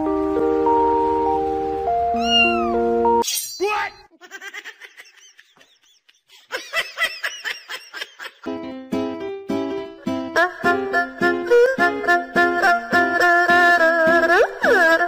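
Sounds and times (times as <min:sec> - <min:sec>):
background music: 0:00.0 - 0:03.2, 0:08.4 - 0:15.0
cat meowing: 0:02.1 - 0:02.9.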